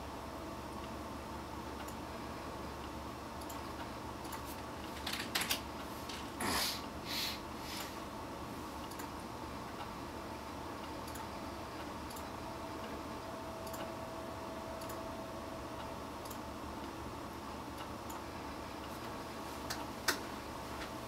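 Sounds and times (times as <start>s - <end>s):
low hum and hiss: 0.0s - 21.0s
faint steady tone: 8.9s - 19.5s.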